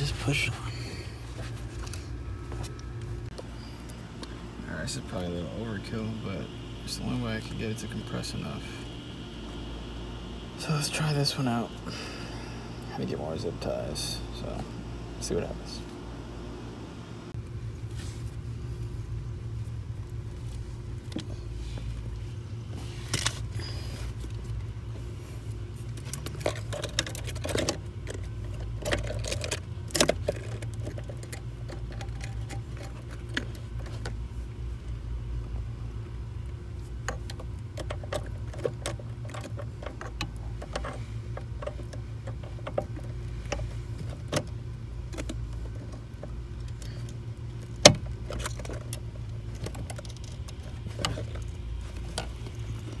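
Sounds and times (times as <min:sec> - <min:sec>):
steady low hum: 0:00.0 - 0:53.0
clicks and metallic rattles: 0:25.9 - 0:34.2, 0:37.0 - 0:53.0.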